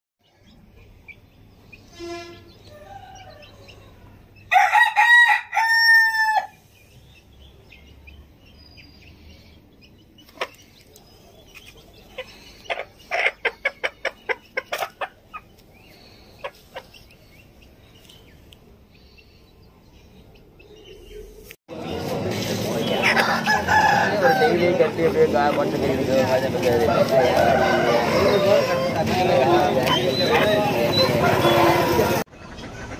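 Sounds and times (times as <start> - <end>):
rooster crowing: 2.7 - 6.5, 23.1 - 24.8, 26.9 - 29.4.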